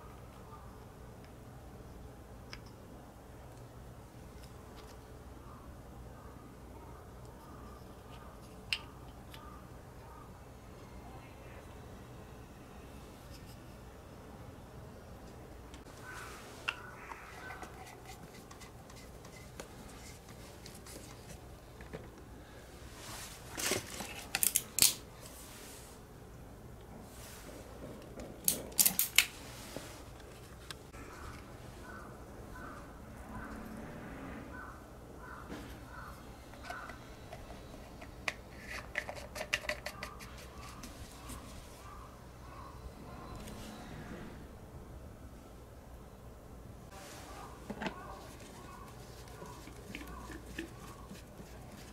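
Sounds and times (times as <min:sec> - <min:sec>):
faint handling noise: 0:15.2 - 0:26.0, 0:26.8 - 0:32.8, 0:46.9 - 0:51.9.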